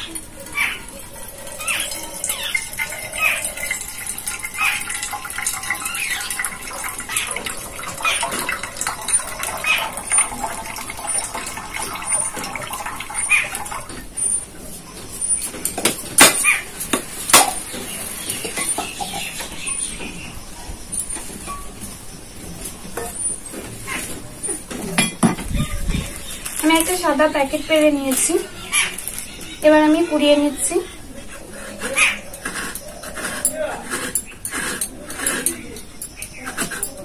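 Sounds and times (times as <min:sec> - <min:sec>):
water trickling into steel bowl: 0:00.0 - 0:14.5.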